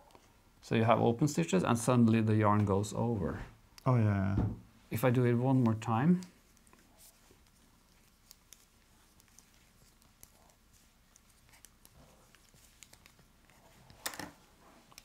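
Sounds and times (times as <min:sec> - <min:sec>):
knitting needles clicking: 0:05.6 - 0:15.0.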